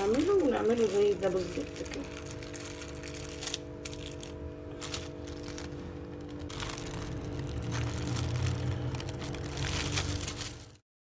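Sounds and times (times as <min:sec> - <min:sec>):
plastic film crinkling: 0:00.0 - 0:10.8
steady low hum: 0:00.0 - 0:10.8.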